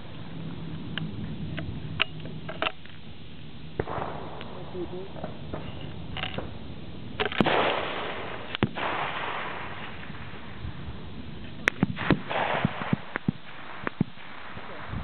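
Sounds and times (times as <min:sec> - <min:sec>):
rifle shots with echo: 0:03.8 - 0:05.7, 0:07.2 - 0:10.4, 0:11.6 - 0:15.0.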